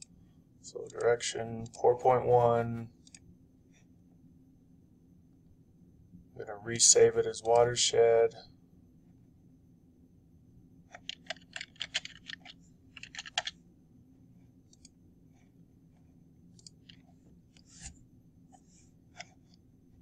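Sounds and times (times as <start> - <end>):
computer mouse clicks: 3.0 - 3.3, 10.9 - 13.6, 14.7 - 15.0, 16.5 - 17.9
typing on a computer keyboard: 11.0 - 13.6.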